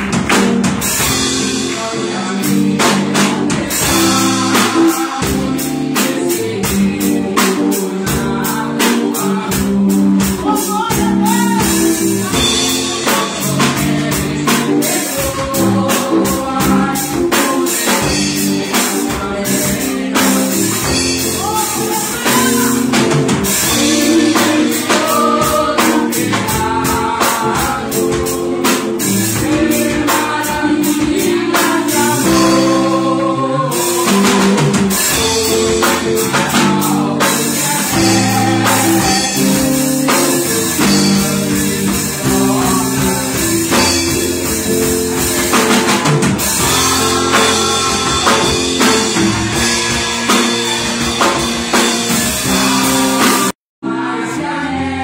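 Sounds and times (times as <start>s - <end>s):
steady drum beat: 0.0s - 53.6s
band playing gospel music: 0.0s - 55.0s
woman singing into a microphone: 1.5s - 23.0s.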